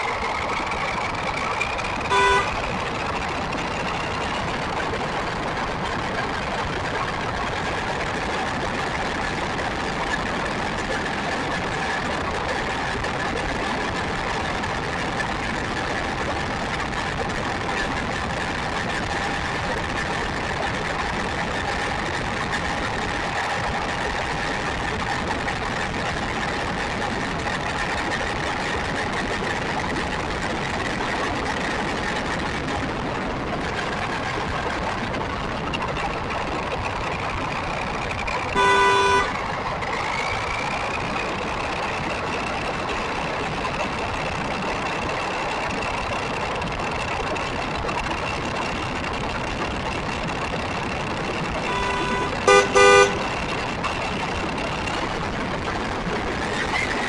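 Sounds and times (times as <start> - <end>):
vehicle horn toot: 2.1 - 2.6, 38.6 - 39.3, 51.7 - 53.2.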